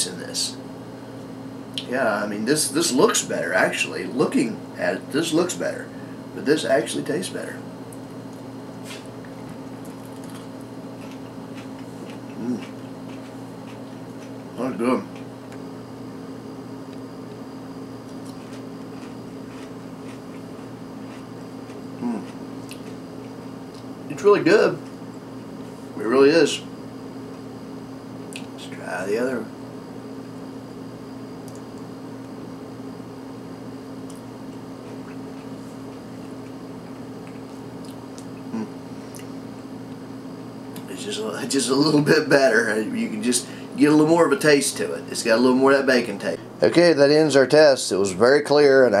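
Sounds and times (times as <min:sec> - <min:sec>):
low electrical hum: 0:00.0 - 0:49.0
crunchy chewing: 0:07.9 - 0:24.1, 0:34.0 - 0:40.1.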